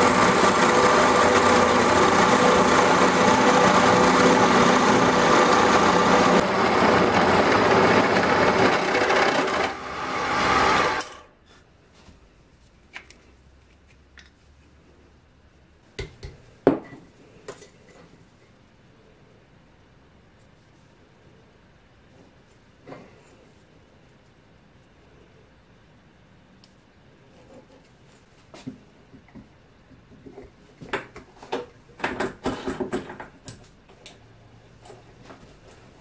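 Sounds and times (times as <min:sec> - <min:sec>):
drill press boring into wood: 0:00.0 - 0:11.3.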